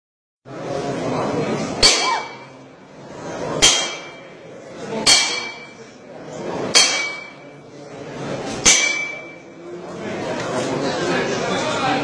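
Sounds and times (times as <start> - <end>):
murmur of voices: 0.5 - 12.0
metal baton striking with metallic ring: 1.8 - 2.5, 3.6 - 4.2, 5.0 - 5.8, 6.8 - 7.4, 8.6 - 9.4.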